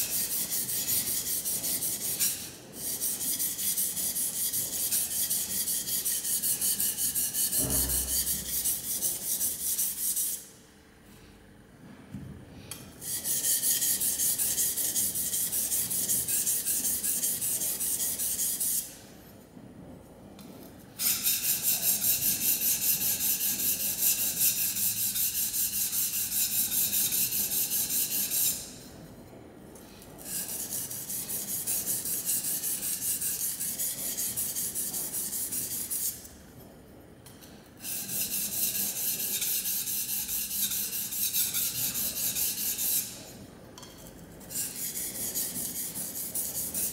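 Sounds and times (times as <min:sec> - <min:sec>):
steel rasping on sharpening stone: 0:37.8 - 0:43.2.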